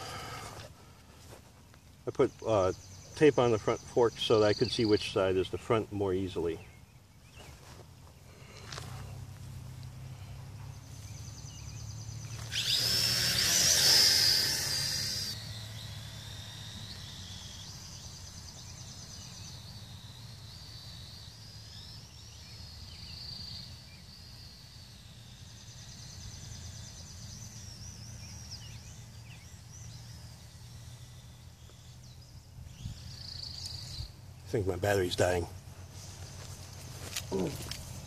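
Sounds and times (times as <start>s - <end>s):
drone motors whining: 8.2s - 34.2s, 35.8s - 38.0s.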